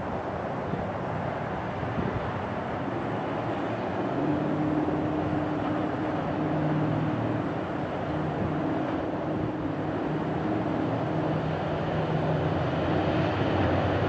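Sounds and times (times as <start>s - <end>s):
train engine and rail rumble: 0.0s - 14.0s
steady low tone: 3.0s - 13.2s.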